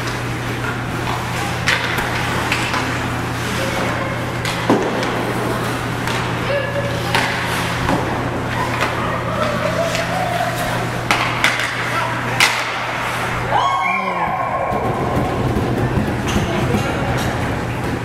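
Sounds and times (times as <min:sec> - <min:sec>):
puck hitting boards: 0:00.0 - 0:03.0, 0:03.8 - 0:06.4, 0:07.0 - 0:13.2, 0:14.2 - 0:18.0
hockey sticks clacking on puck: 0:00.0 - 0:13.3, 0:14.3 - 0:18.0
low arena hum: 0:00.0 - 0:18.0
voices calling out: 0:08.4 - 0:11.1.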